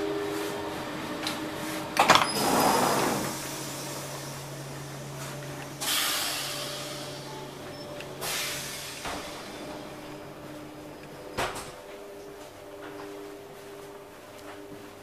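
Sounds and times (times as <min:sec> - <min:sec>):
steady low hum: 0:00.0 - 0:15.0
sliding door click: 0:02.0 - 0:03.4
door air hiss: 0:02.1 - 0:05.1, 0:05.7 - 0:07.3, 0:08.2 - 0:10.0.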